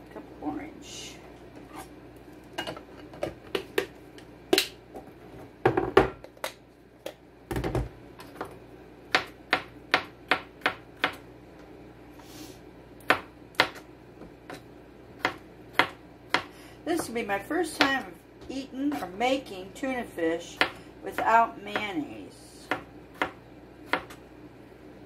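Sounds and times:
knife chopping on plastic board: 0:09.1 - 0:11.2, 0:13.0 - 0:13.8, 0:15.2 - 0:17.1, 0:20.6 - 0:20.8, 0:22.7 - 0:24.2.

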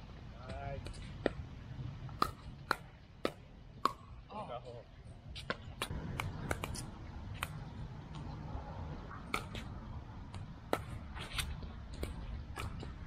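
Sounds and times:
steady low rumble: 0:00.0 - 0:13.0
ball bouncing on court: 0:05.4 - 0:06.8
paddles hitting plastic ball: 0:05.4 - 0:07.6.

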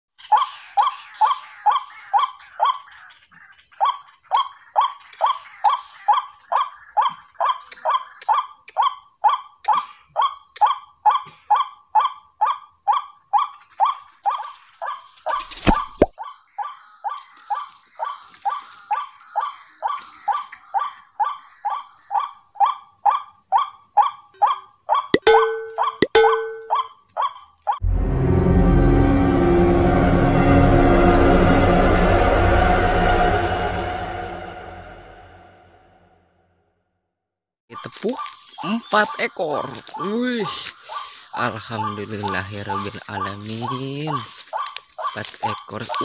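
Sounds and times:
waterhen croaking calls: 0:20.3 - 0:27.3.

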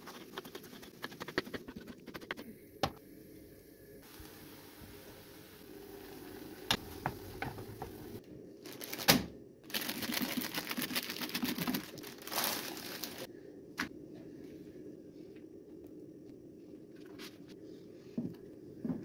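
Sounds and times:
plastic crinkling: 0:08.6 - 0:09.1, 0:09.7 - 0:13.3.

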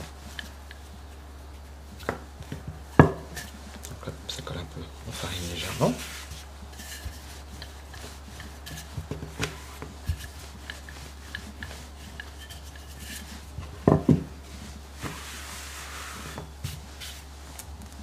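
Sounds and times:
rolling pin on pastry dough: 0:00.0 - 0:18.0
rolling pin knocks on worktop: 0:13.8 - 0:14.3.

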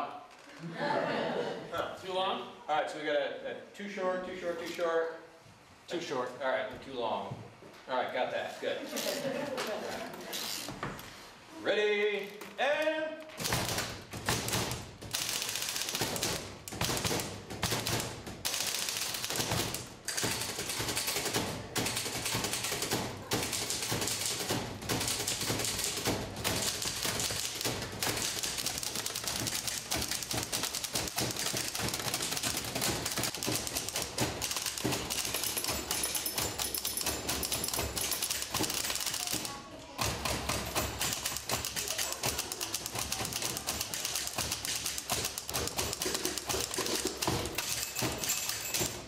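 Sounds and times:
typewriters clattering: 0:13.4 - 0:49.0.

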